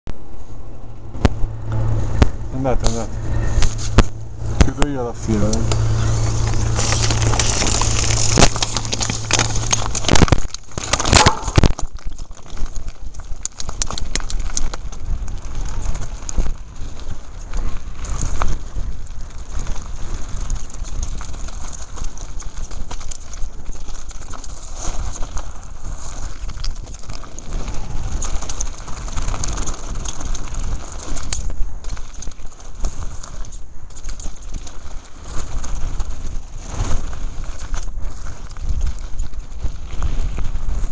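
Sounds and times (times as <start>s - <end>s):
wind rush on microphone: 0.2s - 40.9s
bike rattling over rocks: 1.2s - 40.9s.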